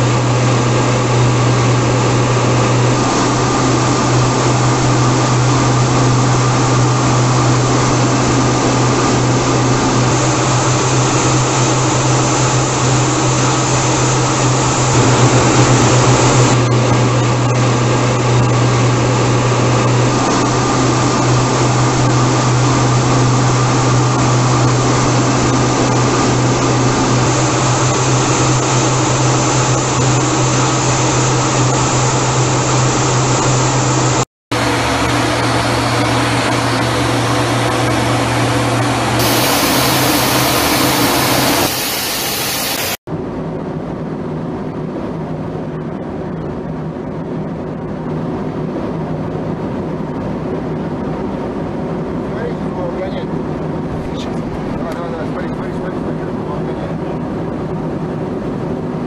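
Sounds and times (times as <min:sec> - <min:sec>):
jet engine rushing: 0:00.0 - 0:43.0.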